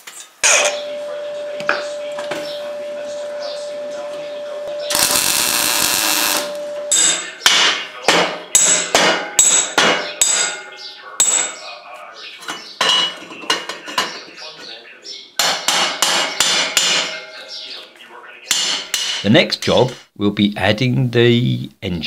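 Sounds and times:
hammer striking steel frame: 6.9s - 11.6s, 15.4s - 17.4s.

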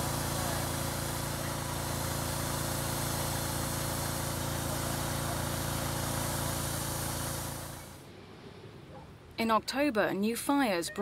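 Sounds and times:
engine running steadily: 0.0s - 8.1s.

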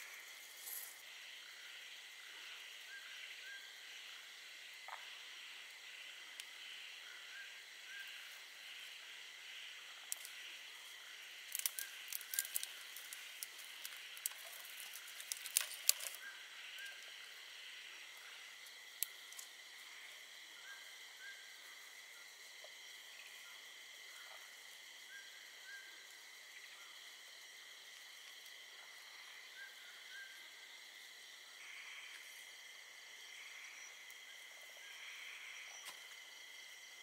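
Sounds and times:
crickets chirping: 0.0s - 37.0s
short insect chirp: 0.0s - 37.0s
close sharp clicks and rustles: 11.5s - 16.2s.

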